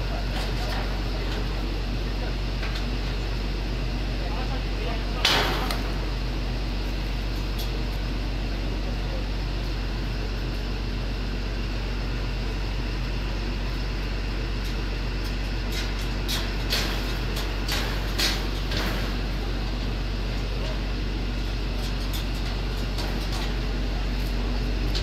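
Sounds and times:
large engine humming: 0.0s - 25.0s.

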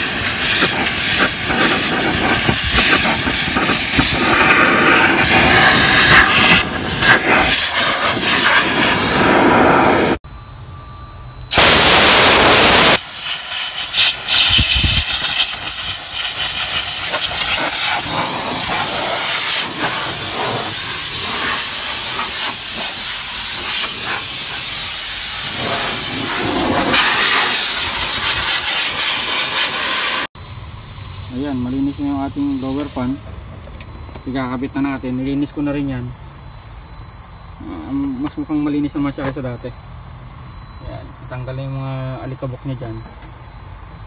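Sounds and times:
compressed air blasting hiss: 0.0s - 10.2s, 11.5s - 30.3s.

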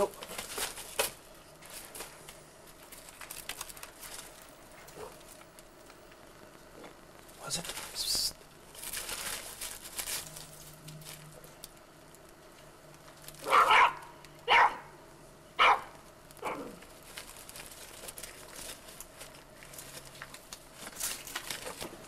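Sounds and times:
dog barking: 13.4s - 14.9s, 15.6s - 16.8s.

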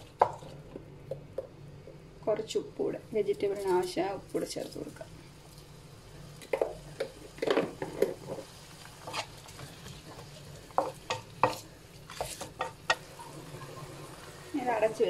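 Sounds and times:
spatula scraping and knocking wok: 6.4s - 14.4s.

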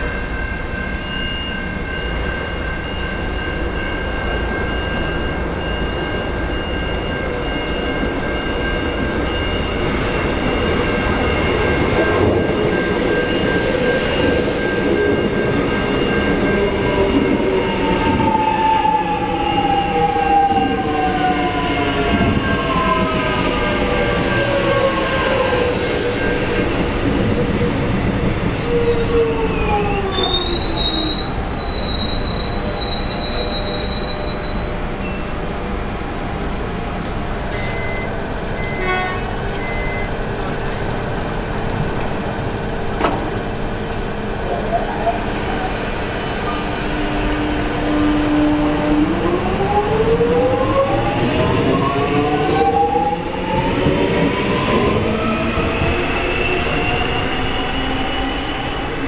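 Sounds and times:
electric train braking to a stop: 0.0s - 59.0s
short door beeps: 37.5s - 38.9s, 39.5s - 40.2s.

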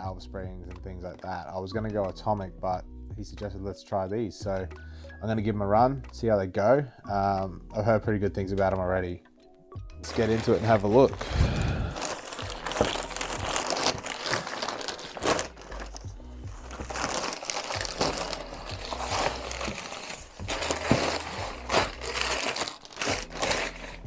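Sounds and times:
packaging crinkling and rustling: 10.0s - 24.0s.

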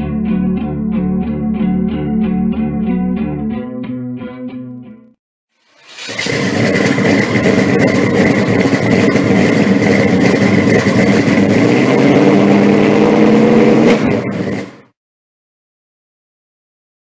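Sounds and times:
high whine: 5.6s - 14.9s
car engine running: 5.8s - 14.9s.

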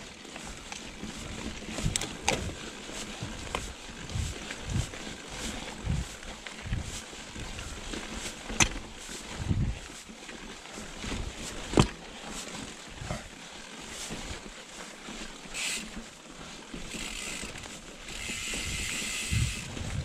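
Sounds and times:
bike rattling over stones: 0.0s - 20.0s
freewheel hub buzzing: 16.7s - 20.0s.

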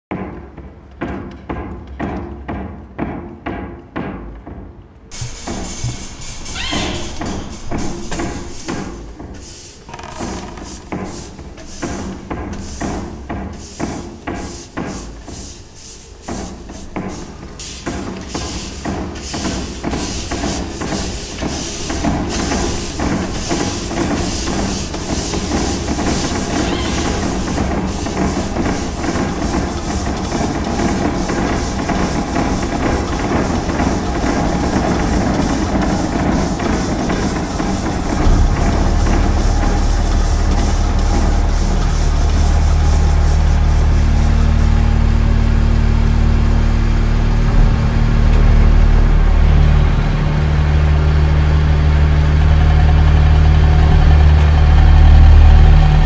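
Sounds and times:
hiss: 5.1s - 56.0s
machine clicks and clatter: 17.0s - 48.8s
deep steady drone: 31.8s - 56.0s.

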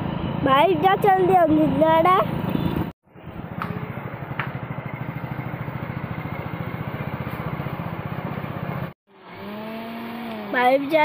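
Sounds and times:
motorbike engine puttering: 2.2s - 10.8s.

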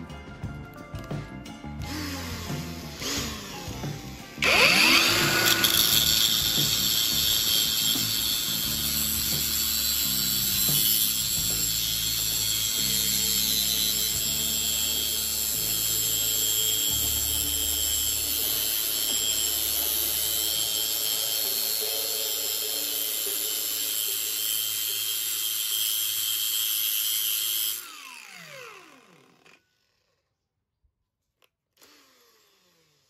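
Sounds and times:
angle grinder whining: 1.8s - 30.2s, 31.8s - 33.0s
drill spinning: 1.8s - 30.3s, 31.8s - 33.0s
screw grinding on disc: 4.4s - 27.8s.

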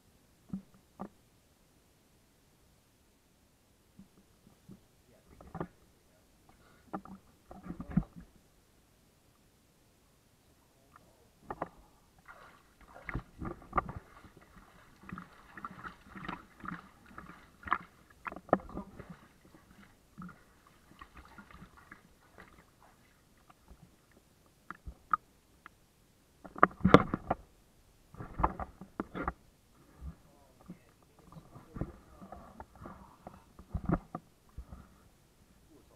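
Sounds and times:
water splashing in a tub: 12.2s - 23.9s.

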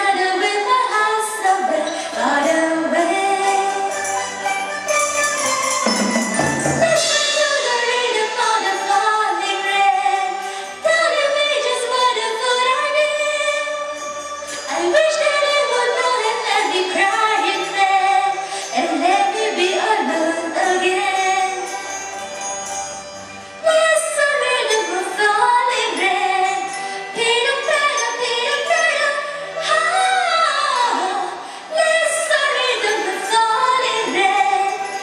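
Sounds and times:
woman singing: 0.0s - 4.1s, 6.6s - 21.9s, 23.6s - 35.0s
traditional orchestra playing: 4.4s - 7.8s.

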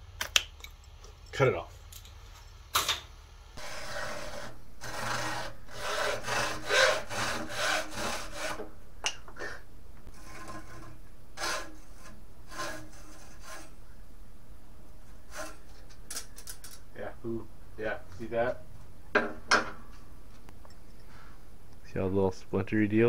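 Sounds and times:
hacksaw rasping strokes: 3.6s - 8.6s, 10.1s - 13.8s, 15.3s - 15.8s.

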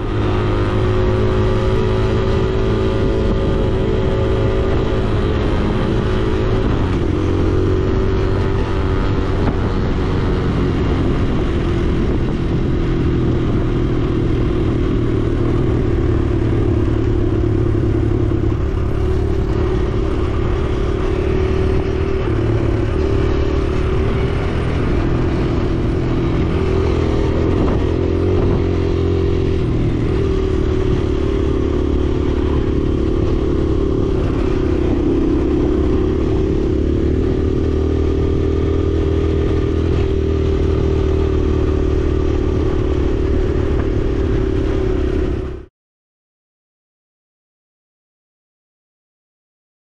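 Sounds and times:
dirt bike engine revving: 14.0s - 45.5s.

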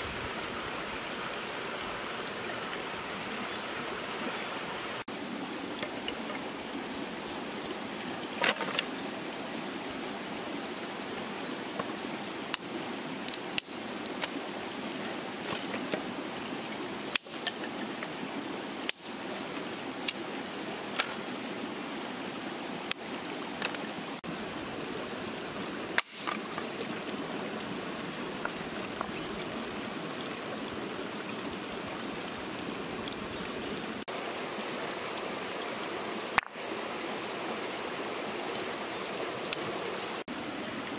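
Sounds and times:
stream running over rocks: 0.0s - 40.9s
clicks of sticks and stones: 8.4s - 9.0s, 11.8s - 14.4s, 17.1s - 19.2s, 20.9s - 21.3s, 25.9s - 26.7s, 36.3s - 36.6s.

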